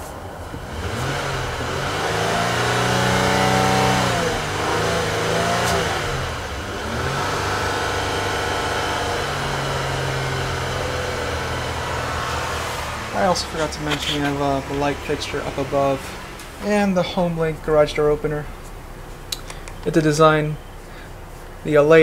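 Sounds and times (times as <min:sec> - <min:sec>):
car engine revving: 0:00.2 - 0:22.0.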